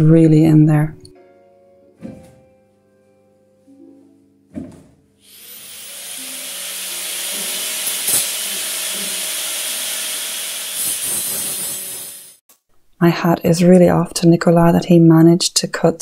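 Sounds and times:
knock: 0:04.5 - 0:05.0
angle grinder cutting metal: 0:05.2 - 0:12.4.

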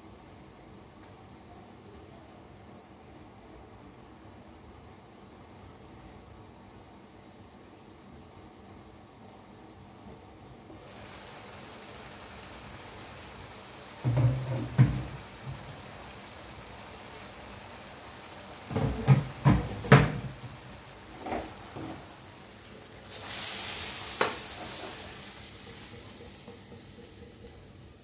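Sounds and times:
sauce sizzling in hot pot: 0:10.7 - 0:28.0.

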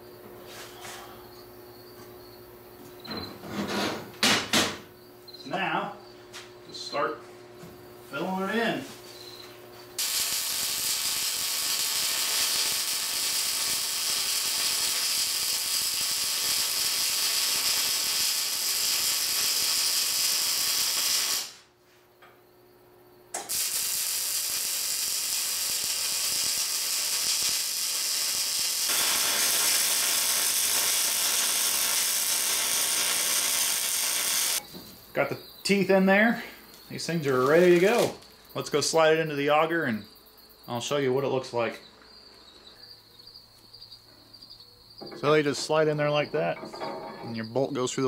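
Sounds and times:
welding arc crackling: 0:10.0 - 0:21.6, 0:23.4 - 0:34.6, 0:37.0 - 0:38.2.

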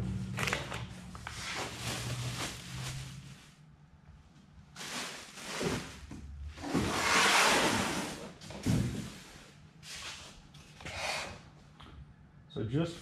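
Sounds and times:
packaging rustling: 0:00.3 - 0:03.5.

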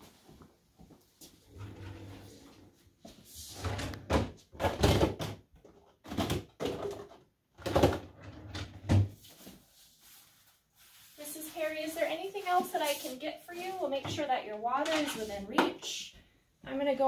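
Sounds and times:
plastic basins clattering: 0:03.8 - 0:09.2.

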